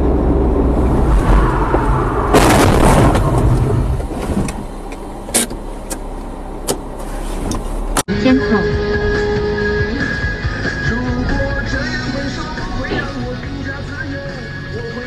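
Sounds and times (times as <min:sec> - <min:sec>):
road noise: 0:00.0 - 0:15.0
vehicle engine running: 0:03.2 - 0:15.0.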